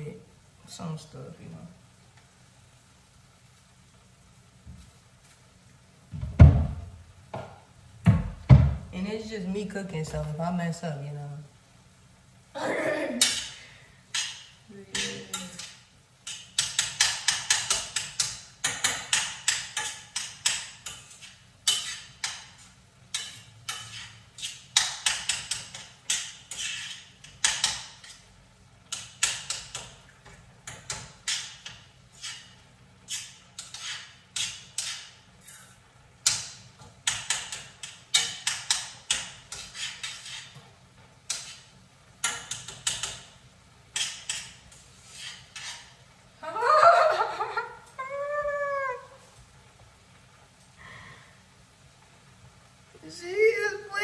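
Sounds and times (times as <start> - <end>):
utensil tapping and scraping pan: 13.2 - 46.1.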